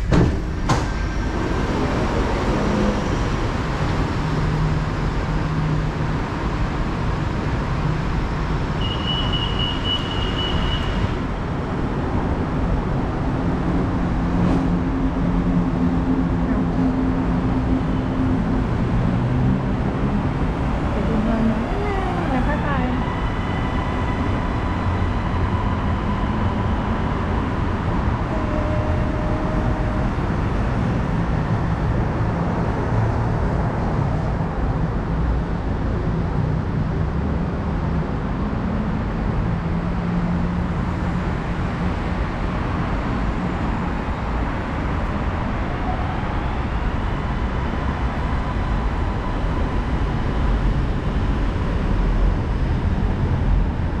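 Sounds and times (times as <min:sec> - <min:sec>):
urban traffic rumble: 0:00.0 - 0:54.0.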